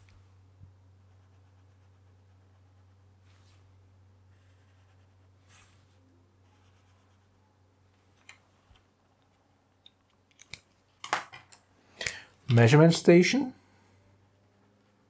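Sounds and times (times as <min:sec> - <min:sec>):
steady low hum: 0:00.0 - 0:10.1.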